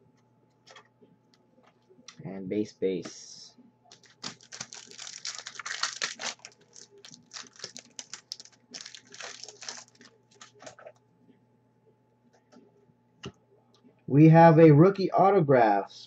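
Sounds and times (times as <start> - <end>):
trading cards flipped and sorted: 3.9 - 11.0.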